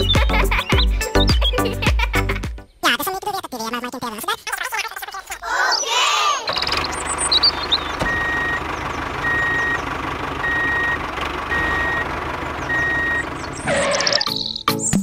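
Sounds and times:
engine running: 6.5s - 14.3s
vehicle reversing alarm beeping: 6.6s - 14.4s.

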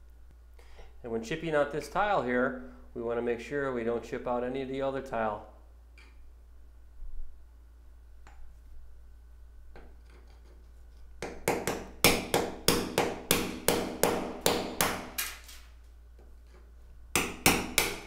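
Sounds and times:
hammer striking chisel: 11.2s - 15.4s, 17.1s - 18.0s.

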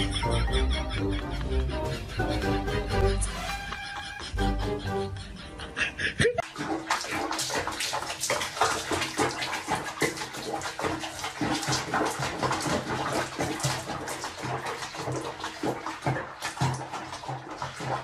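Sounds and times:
water sloshing and splashing: 6.4s - 18.0s.

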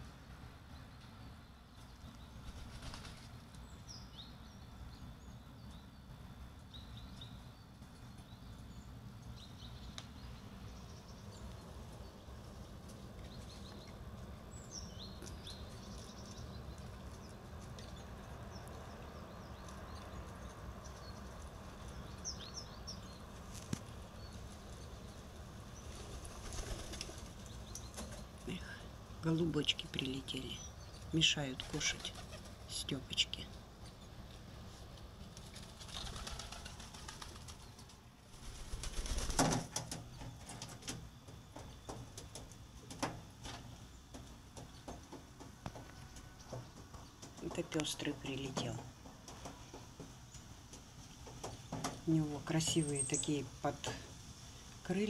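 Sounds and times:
steady low background noise: 0.0s - 55.0s
pigeon wings flapping: 2.4s - 3.4s, 25.9s - 27.4s, 35.3s - 40.0s.

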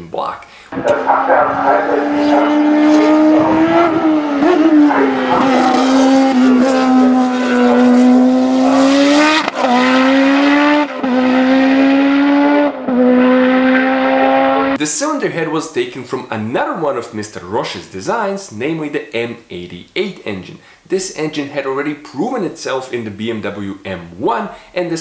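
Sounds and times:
racing car engine running hard: 0.8s - 14.8s.

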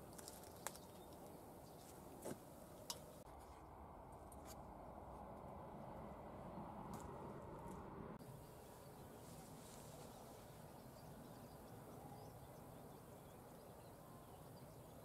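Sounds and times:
faint bird chirps: 8.3s - 15.0s.

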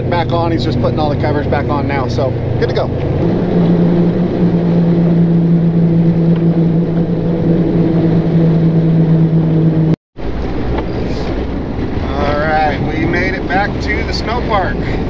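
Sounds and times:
tracked vehicle engine drone: 0.0s - 15.0s.

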